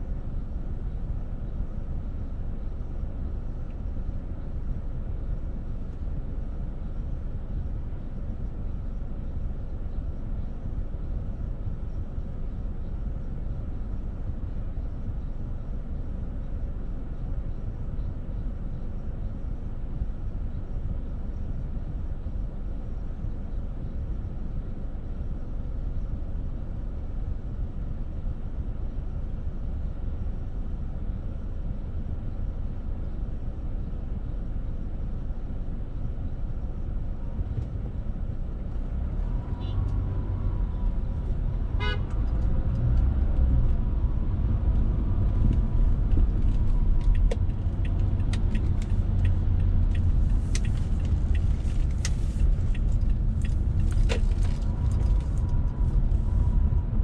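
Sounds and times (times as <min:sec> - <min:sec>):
car road and engine rumble: 0:00.0 - 0:57.0
faint car horn: 0:39.4 - 0:40.1, 0:41.7 - 0:42.2.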